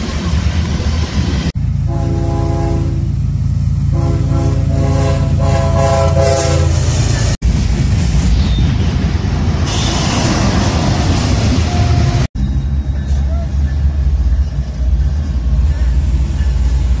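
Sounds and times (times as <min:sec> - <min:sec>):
diesel engine rumble: 0:00.0 - 0:17.0
train wheel noise: 0:00.0 - 0:17.0
locomotive air horn blasts: 0:01.8 - 0:03.3, 0:03.9 - 0:07.0.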